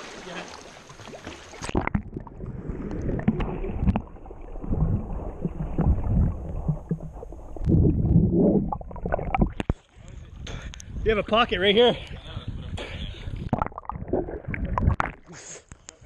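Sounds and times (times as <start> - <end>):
water splashing: 0.0 - 9.9, 13.4 - 15.3
muffled underwater sloshing: 0.0 - 10.4
bubbly knocks and clicks: 1.6 - 9.8, 13.4 - 15.3.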